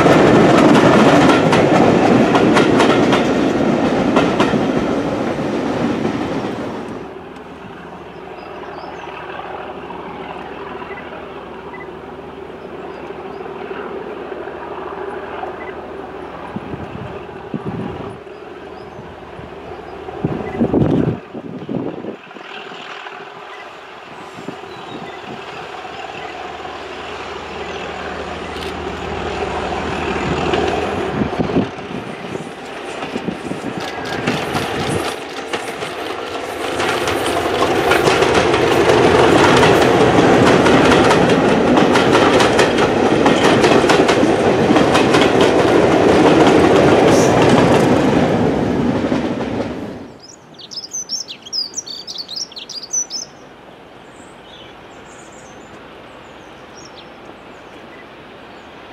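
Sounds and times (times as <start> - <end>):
wheels clicking over rail joints: 0.0 - 9.7, 27.5 - 50.3
diesel locomotive engine: 0.0 - 58.9.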